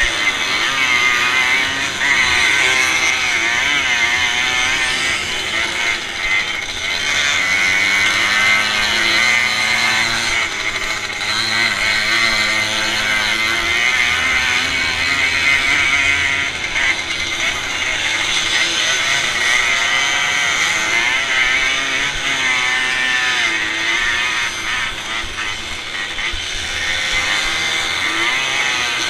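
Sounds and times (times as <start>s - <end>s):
motorcycle engine revving: 0.0s - 29.0s
other motorcycle engines: 0.0s - 29.0s.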